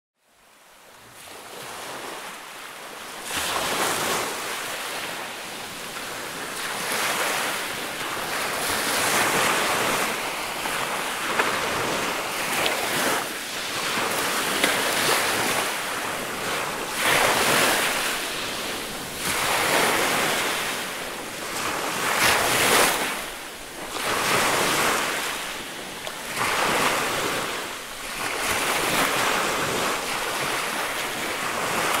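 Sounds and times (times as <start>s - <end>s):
ocean waves breaking on shore: 0.2s - 32.0s.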